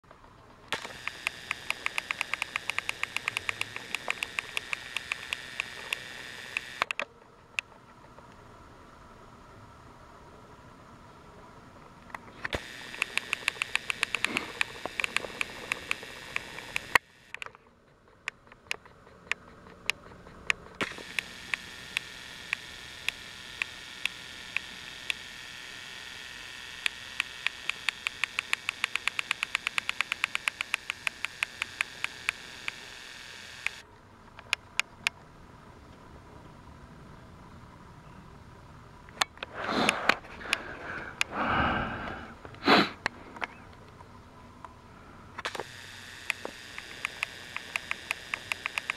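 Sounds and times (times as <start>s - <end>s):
toy train motor whining: 0.7s - 7.7s, 12.3s - 33.8s, 45.4s - 48.9s
sharp rapid clicks: 0.7s - 8.3s, 12.4s - 25.2s, 26.8s - 33.8s, 45.4s - 48.9s.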